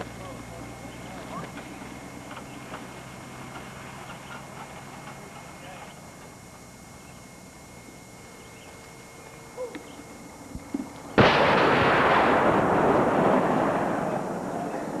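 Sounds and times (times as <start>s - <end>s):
cannon blast: 11.2s - 15.0s.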